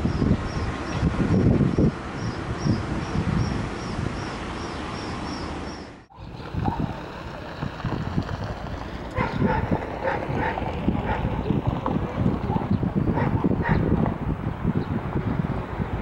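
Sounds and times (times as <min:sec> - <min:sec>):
diesel locomotive under power: 0:05.6 - 0:16.0
passenger train rumbling past: 0:06.0 - 0:14.4
dog barking: 0:06.4 - 0:07.0, 0:09.2 - 0:11.4, 0:12.1 - 0:13.9.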